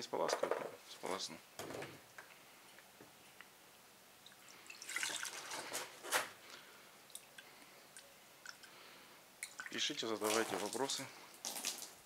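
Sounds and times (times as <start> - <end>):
water dripping: 4.2 - 5.5, 6.5 - 8.8, 9.4 - 12.0
water splashing from jug: 4.3 - 5.7, 9.4 - 12.0.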